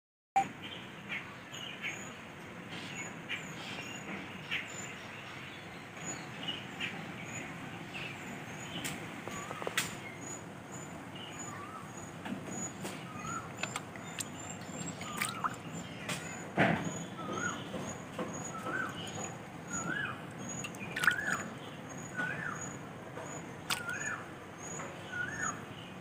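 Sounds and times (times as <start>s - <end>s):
bird chirping: 2.9s - 26.0s
water splashing in a steel bowl: 13.0s - 15.9s, 19.7s - 21.5s, 23.6s - 24.2s.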